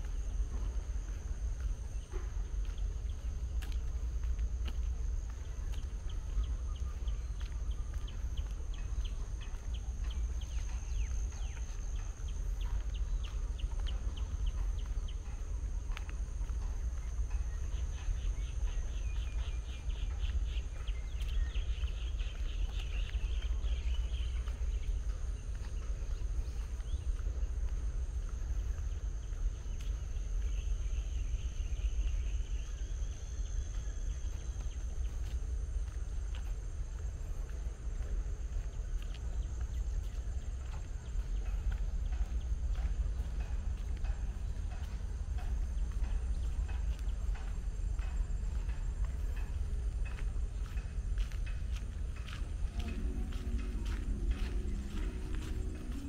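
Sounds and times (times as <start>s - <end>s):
constant low rumble: 0.0s - 56.0s
high-pitched drone: 52.0s - 56.0s.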